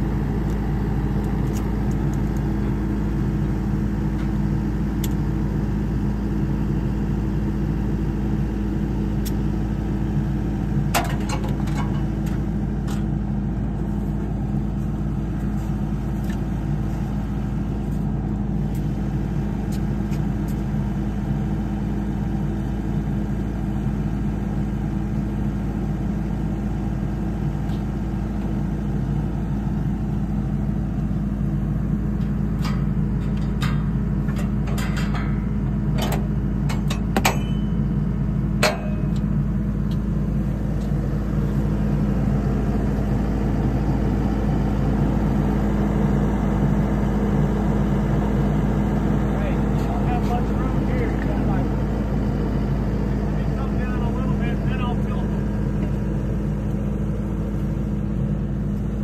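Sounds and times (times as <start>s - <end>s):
engine idling: 0.0s - 59.0s
sharp metal clanks: 32.6s - 38.0s, 38.6s - 39.2s.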